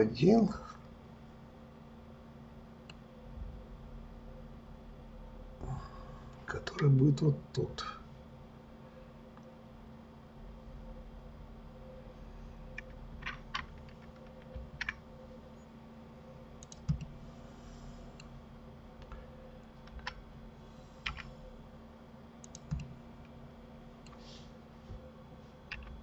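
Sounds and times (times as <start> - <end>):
faint steady hum: 0.0 - 26.0
keyboard and mouse clicking: 12.8 - 15.0, 16.6 - 17.1, 19.8 - 20.2, 21.0 - 21.4, 22.4 - 23.0, 25.7 - 26.0.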